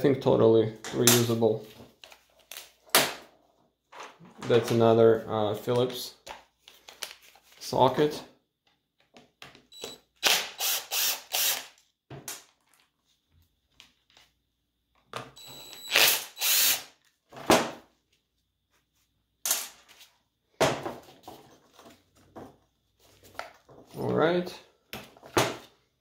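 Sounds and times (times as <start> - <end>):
cordless drill spinning: 9.7 - 11.8, 15.4 - 17.0.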